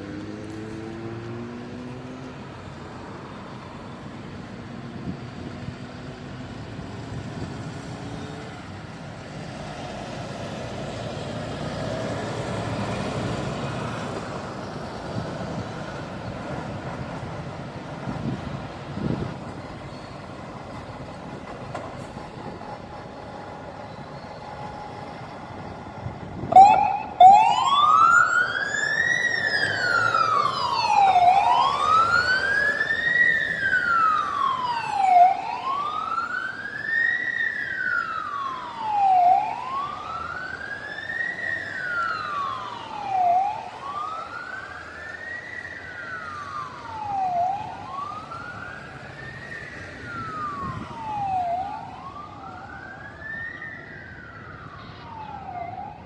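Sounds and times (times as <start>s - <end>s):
passing traffic: 0.0s - 56.0s
fire engine siren wailing: 20.6s - 56.0s.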